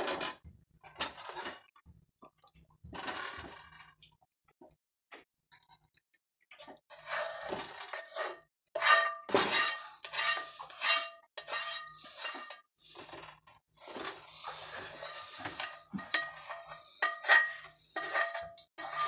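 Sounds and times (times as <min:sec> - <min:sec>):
plastic spoon scraping skillet: 0:07.0 - 0:19.0.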